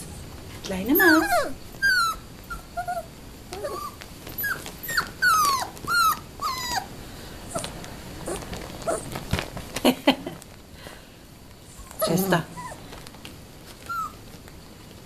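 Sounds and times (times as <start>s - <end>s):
puppy whimpering: 0.8s - 6.9s, 7.5s - 9.2s, 11.7s - 12.8s, 13.8s - 14.2s.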